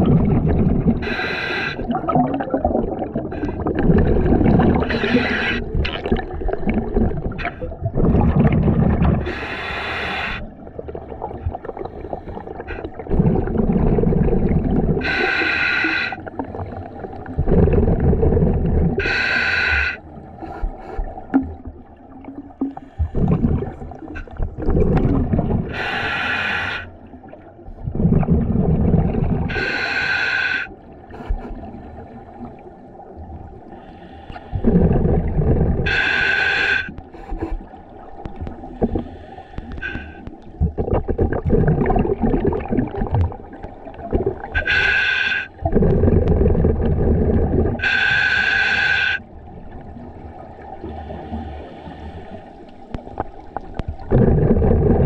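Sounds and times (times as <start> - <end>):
exhaust bubbles rumbling: 0.0 - 1.1, 1.8 - 9.3, 10.7 - 15.1, 17.0 - 19.0, 21.3 - 25.8, 27.7 - 29.5, 34.6 - 35.9, 40.4 - 44.6, 45.6 - 47.8, 53.1 - 55.0
hissing breath through regulator: 1.0 - 2.0, 4.8 - 5.8, 9.2 - 10.5, 15.0 - 17.0, 19.0 - 21.2, 25.7 - 27.1, 29.5 - 31.6, 33.7 - 35.1, 35.8 - 37.7, 38.6 - 40.4, 44.6 - 45.6, 47.8 - 49.3, 50.9 - 52.8.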